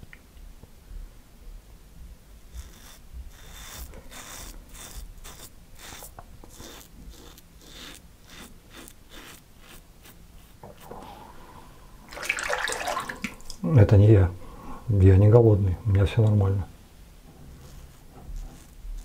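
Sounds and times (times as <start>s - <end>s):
razor scraping stubble: 2.4s - 10.9s, 17.4s - 19.0s.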